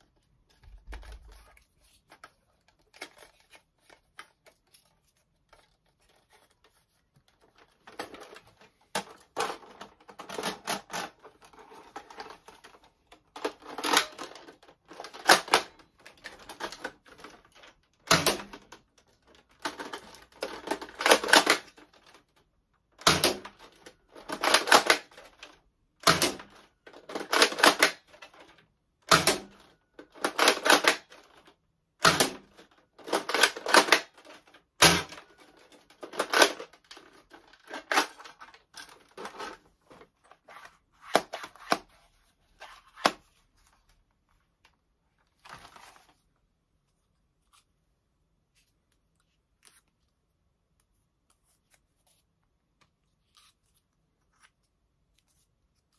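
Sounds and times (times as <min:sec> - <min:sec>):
plastic clicks of toy blaster priming: 0:32.0 - 0:34.2.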